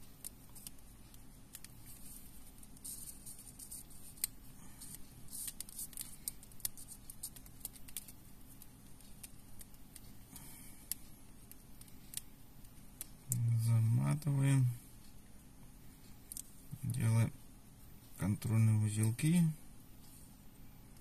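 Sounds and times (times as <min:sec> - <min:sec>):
fingers handling thread and metal: 0:00.1 - 0:13.7.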